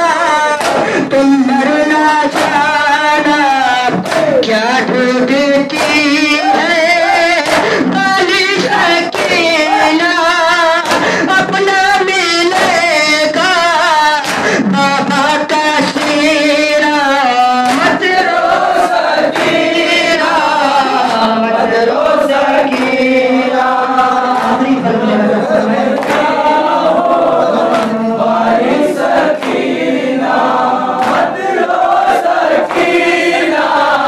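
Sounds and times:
men chanting a lament: 0:00.0 - 0:34.0
hand slaps on chest: 0:00.6 - 0:01.1, 0:02.3 - 0:02.7, 0:03.9 - 0:04.4, 0:07.4 - 0:07.8, 0:10.8 - 0:11.6, 0:14.2 - 0:14.5, 0:17.6 - 0:19.6, 0:26.0 - 0:26.4, 0:31.0 - 0:31.3.

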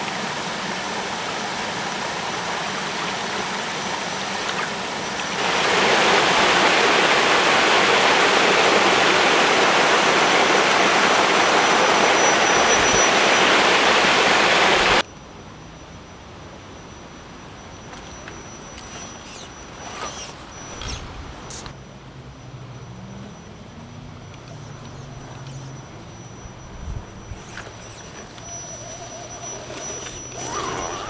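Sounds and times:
stream rushing over rock: 0:00.0 - 0:15.0
waterfall: 0:00.0 - 0:15.0.

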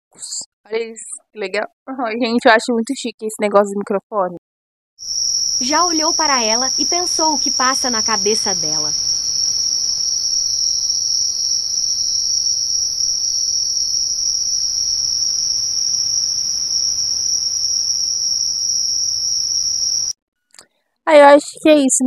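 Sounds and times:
cricket trilling: 0:05.0 - 0:20.2.

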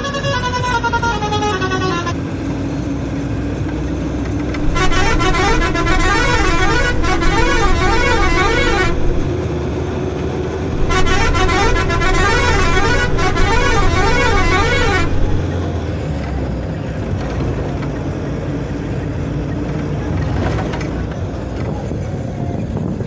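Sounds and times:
road noise: 0:00.0 - 0:23.0
vehicle engine running: 0:02.2 - 0:23.0
warbling musical car horn: 0:04.6 - 0:09.3, 0:10.7 - 0:15.5.

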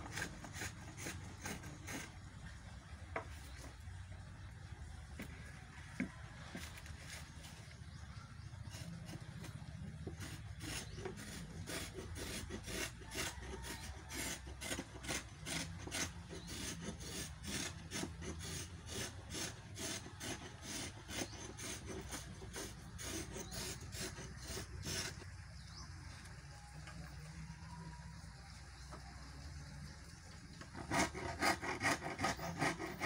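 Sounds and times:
hand tool rasping wood: 0:00.0 - 0:02.3, 0:08.6 - 0:25.3, 0:30.6 - 0:33.0.

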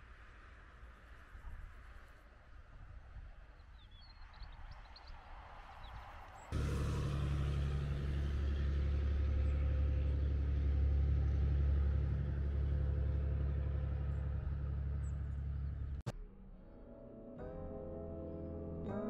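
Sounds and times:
engine running with low rumble: 0:06.6 - 0:16.1.

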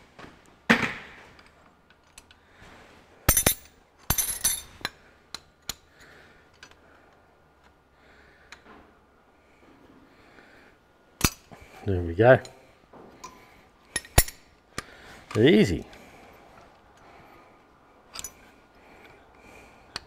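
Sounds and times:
spanner clinking on metal: 0:03.3 - 0:05.8, 0:13.2 - 0:14.5, 0:18.1 - 0:18.5.

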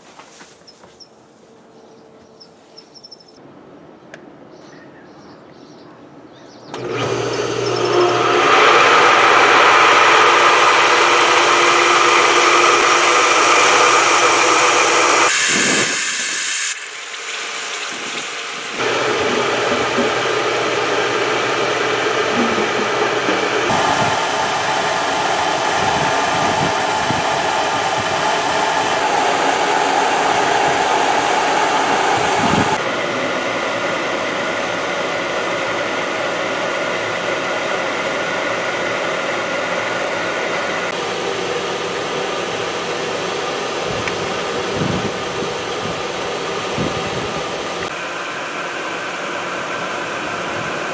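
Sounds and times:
air hissing from valve: 0:15.0 - 0:18.8.

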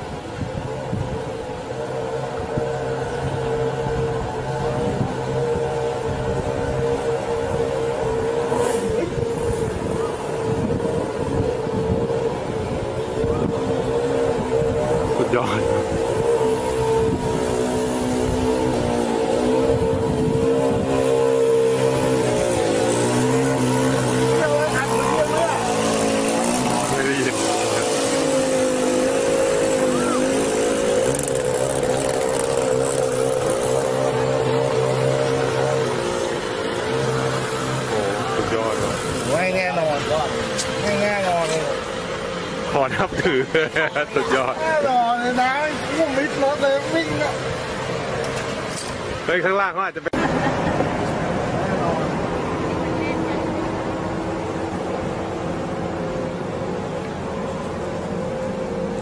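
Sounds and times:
motorcycle engine running: 0:00.0 - 0:49.1
water churning: 0:00.0 - 0:59.0.

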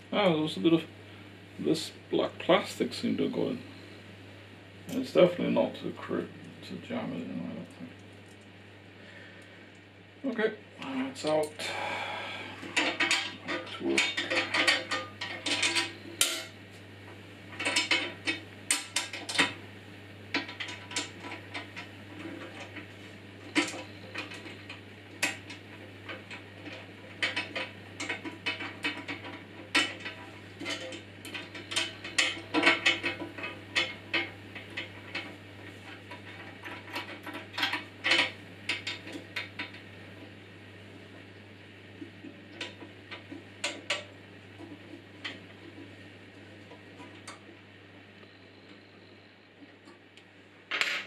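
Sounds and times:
faint low hum: 0:42.0 - 0:50.5.

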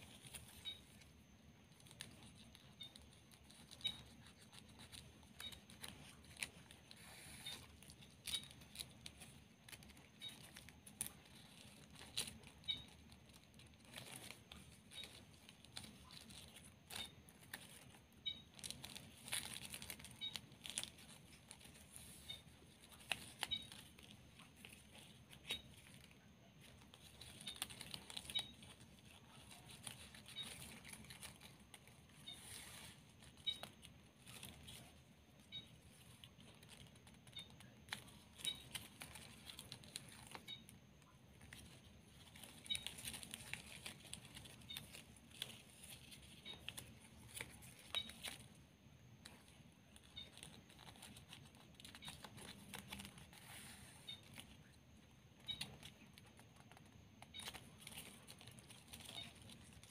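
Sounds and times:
plastic ribbon rustling and crinkling: 0:00.0 - 0:59.9
small clicks and crackles: 0:00.0 - 0:59.9.

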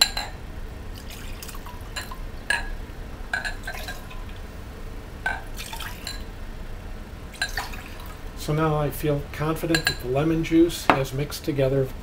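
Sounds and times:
glass clinking against glass: 0:03.4 - 0:04.0.

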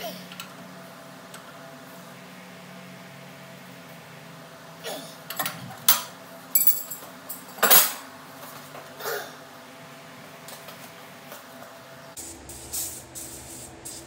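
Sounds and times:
steel tools clanking on metal: 0:05.3 - 0:08.0.

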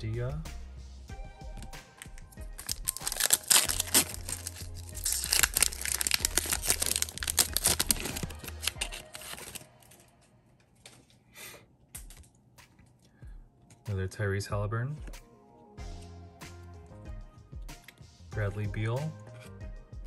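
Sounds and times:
foil wrapper tearing and crinkling: 0:02.0 - 0:10.1.

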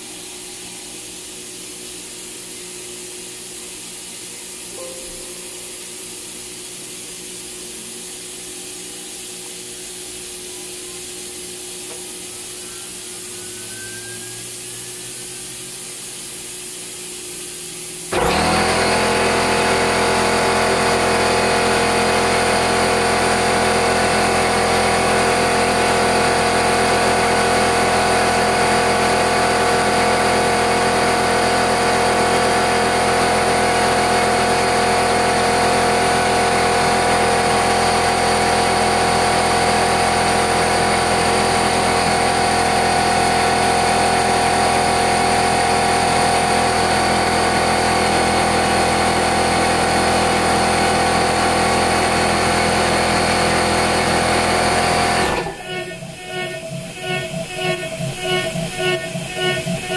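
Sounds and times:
router spindle cutting metal whine: 0:12.6 - 0:15.8, 0:18.1 - 0:59.9.

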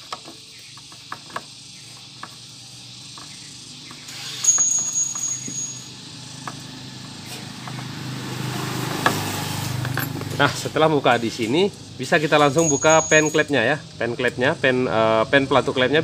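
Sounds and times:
low engine hum: 0:05.5 - 0:12.9
high whistle-like tone: 0:12.4 - 0:13.5.

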